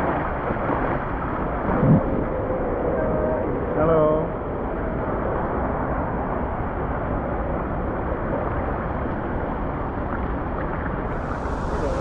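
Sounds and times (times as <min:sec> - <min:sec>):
water rushing through slide: 0:10.8 - 0:12.0.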